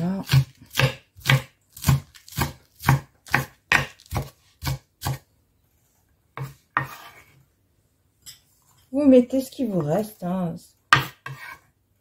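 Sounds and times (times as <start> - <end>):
knife chopping on wooden board: 0.1 - 5.2, 6.4 - 7.2, 10.9 - 11.6
knife scraping board: 5.9 - 7.4, 10.9 - 11.7.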